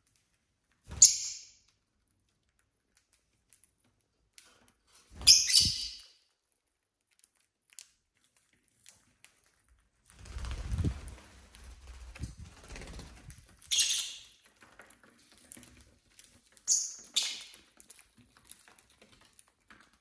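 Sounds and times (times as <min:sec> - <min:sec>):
shrill bird chirps: 0:05.2 - 0:06.2, 0:13.7 - 0:14.4.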